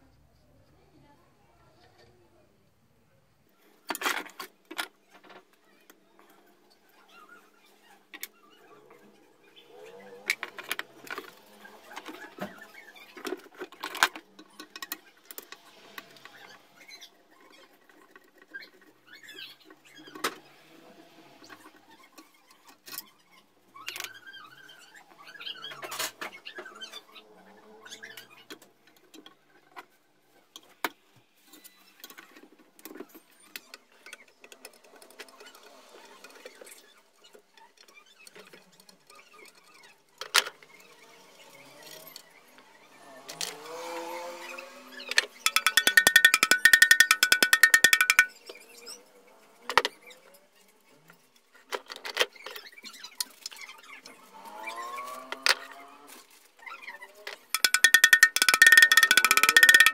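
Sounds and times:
small metal parts clicking and scraping: 0:45.0 - 0:48.4, 0:57.1 - 0:59.9.

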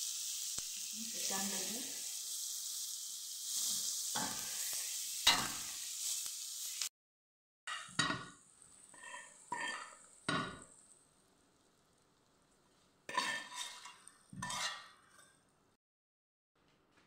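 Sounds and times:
offal sizzling in a frying pan: 0:00.0 - 0:06.9, 0:07.7 - 0:15.2
metal spoon scraping a pan: 0:07.7 - 0:10.9, 0:13.1 - 0:15.4.

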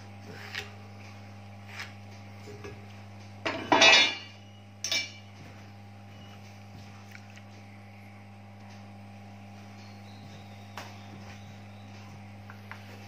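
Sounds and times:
ringing metal clink: 0:03.7 - 0:05.2.

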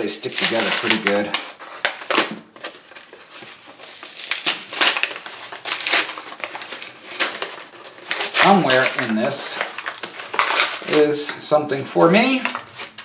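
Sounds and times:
cardboard crinkling as it is peeled apart: 0:00.0 - 0:13.0.

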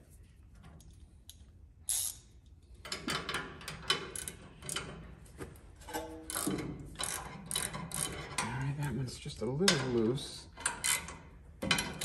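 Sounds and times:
wrench loosening bolts: 0:01.9 - 0:04.9, 0:06.3 - 0:08.5, 0:09.7 - 0:12.0.

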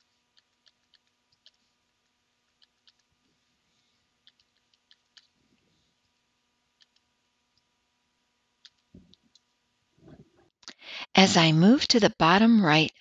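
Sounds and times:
computer mouse clicks: 0:00.0 - 0:01.6, 0:02.5 - 0:03.1, 0:04.2 - 0:05.4, 0:06.8 - 0:07.7, 0:08.6 - 0:09.5.

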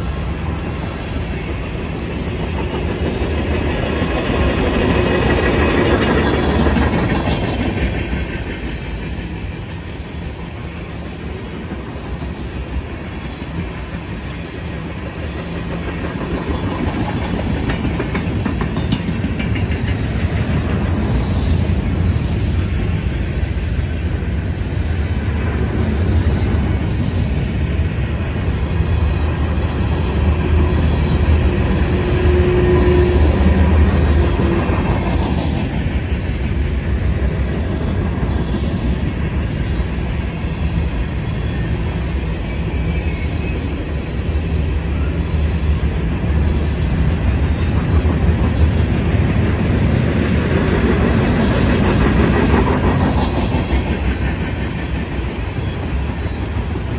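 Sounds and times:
freight train rumbling past: 0:00.0 - 0:56.9
faint wheel squeal: 0:38.3 - 0:56.9.

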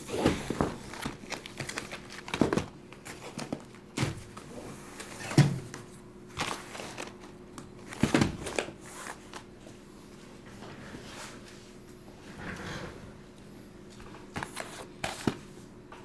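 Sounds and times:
plastic wrap crinkling: 0:00.8 - 0:03.8.

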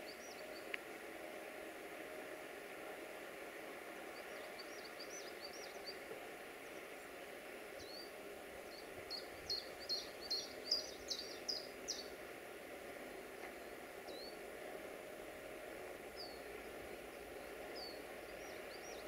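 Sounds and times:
faint train hum: 0:00.0 - 0:19.0
songbird chirping: 0:04.0 - 0:12.2, 0:16.1 - 0:19.0.

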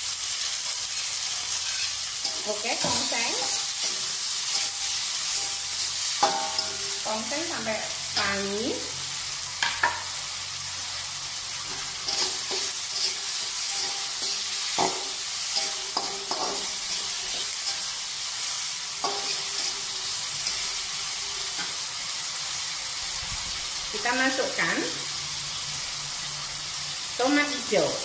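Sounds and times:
vegetables sizzling in hot oil: 0:00.0 - 0:28.0
metal spatula scraping pan: 0:01.5 - 0:08.9, 0:11.6 - 0:18.0, 0:18.9 - 0:21.8.

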